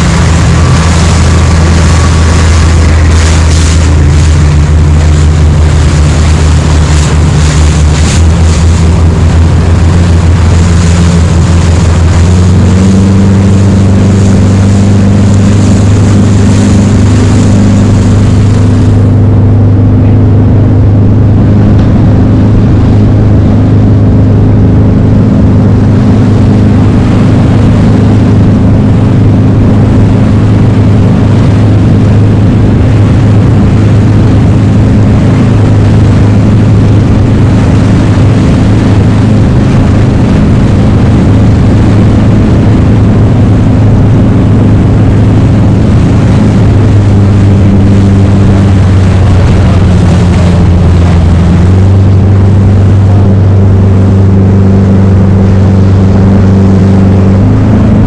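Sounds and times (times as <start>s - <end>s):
high rushing hiss: 0.0s - 12.2s
outboard motor droning: 0.0s - 58.0s.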